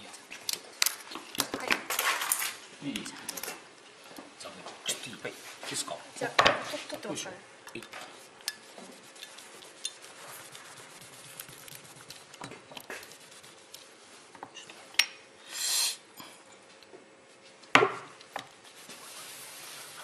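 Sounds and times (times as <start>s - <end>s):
cloth rubbing on metal disc: 8.2s - 14.2s, 18.6s - 20.0s
short hiss: 15.4s - 16.0s.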